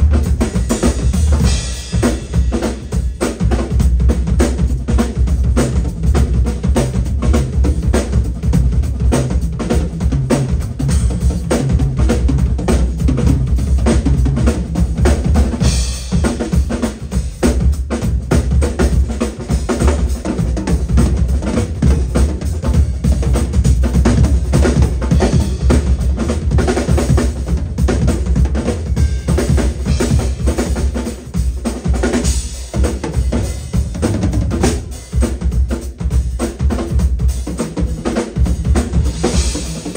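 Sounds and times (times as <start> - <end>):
bass drum and snare strokes: 0.0 - 39.9.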